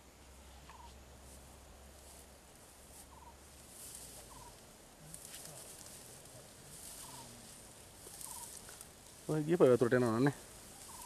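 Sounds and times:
faint hiss: 0:00.0 - 0:11.0
bird rattling chirps: 0:08.2 - 0:08.6.

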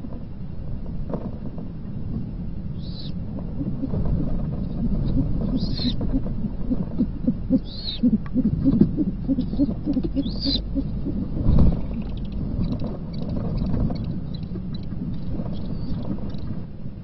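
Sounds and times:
high squealing calls: 0:02.8 - 0:04.0, 0:05.1 - 0:06.0, 0:07.5 - 0:12.4
owls hooting: 0:02.8 - 0:04.0, 0:04.7 - 0:12.4
owl wings flapping: 0:02.8 - 0:14.1.

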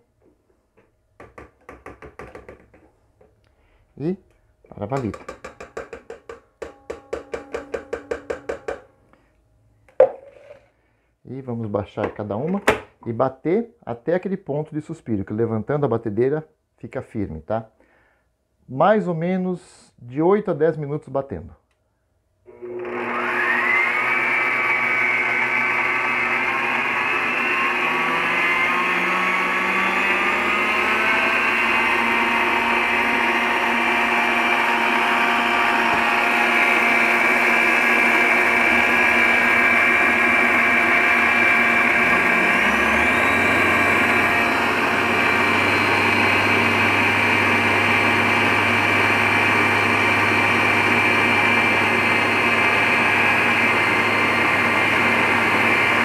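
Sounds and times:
stand mixer motors whining: 0:22.5 - 0:56.0.

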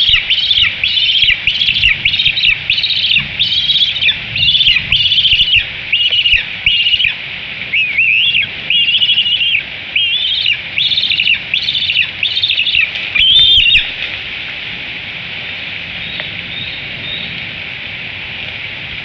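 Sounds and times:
eagle piping begging calls: 0:00.0 - 0:14.0
rain hissing: 0:00.0 - 0:19.0.

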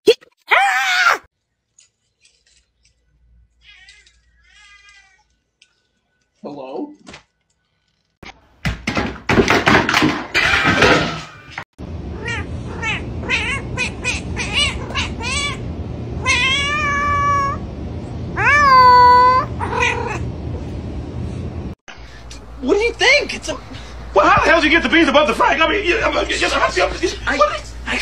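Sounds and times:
cat meowing: 0:03.6 - 0:05.3, 0:12.2 - 0:15.6, 0:16.2 - 0:17.6, 0:18.4 - 0:20.2.

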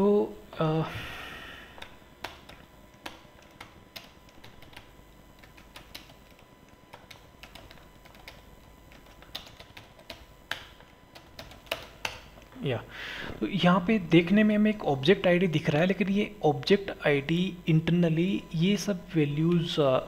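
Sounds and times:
computer keyboard typing: 0:01.8 - 0:12.3.

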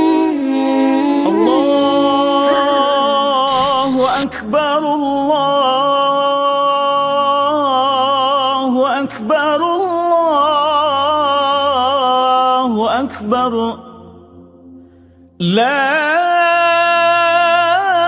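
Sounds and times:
solo voice chanting: 0:00.0 - 0:14.1.

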